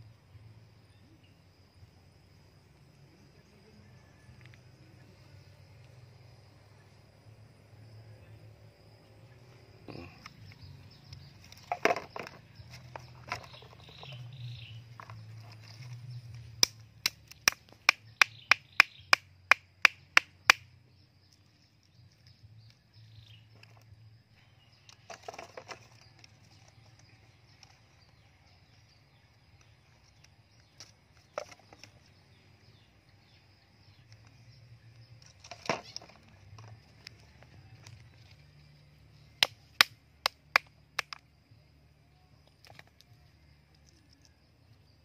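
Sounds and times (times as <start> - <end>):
wooden stick knocking on log: 11.5 - 14.3.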